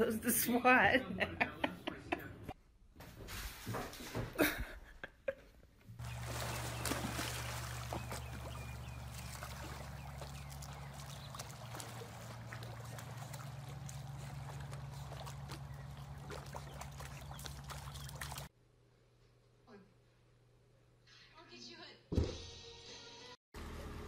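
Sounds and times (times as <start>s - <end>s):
pool water splashing: 6.0s - 18.5s
steady low hum: 6.0s - 18.5s.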